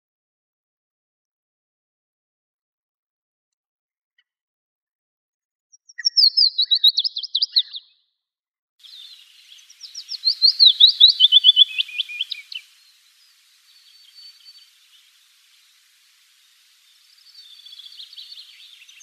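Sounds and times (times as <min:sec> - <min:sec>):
warbler singing: 0:05.8 - 0:07.9, 0:08.8 - 0:19.0.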